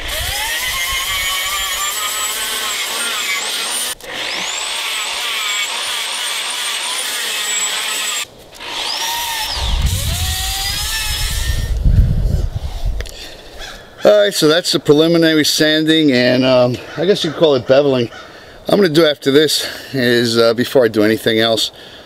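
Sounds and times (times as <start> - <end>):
angle grinder sanding fiberglass: 0.0 - 11.8.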